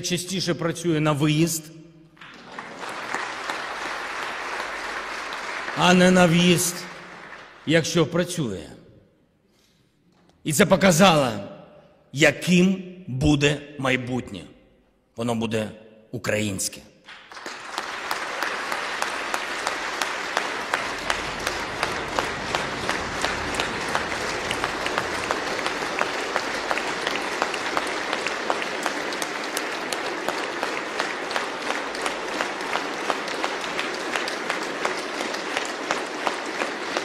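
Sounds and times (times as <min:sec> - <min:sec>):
audience applauding: 0:02.2 - 0:08.2, 0:17.1 - 0:37.0.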